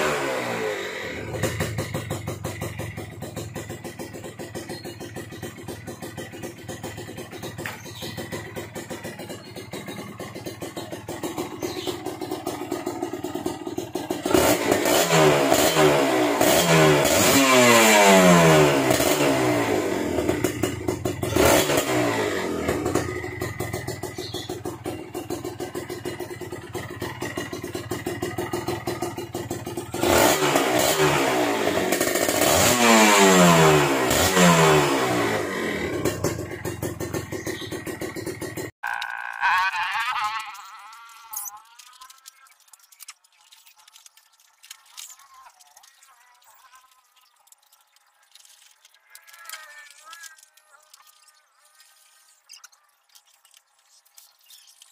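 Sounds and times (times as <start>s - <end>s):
motorcycle engine idling and revving: 0.0s - 54.9s.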